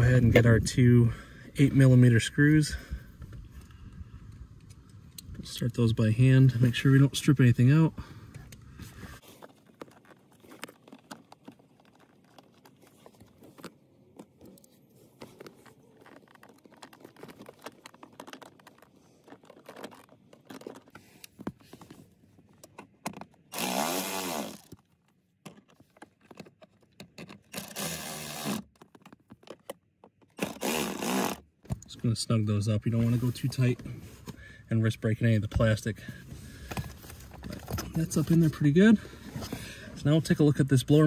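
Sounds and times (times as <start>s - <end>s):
faint clicks and rustling: 8.3s - 23.7s
cordless power driver whirring: 23.5s - 24.7s.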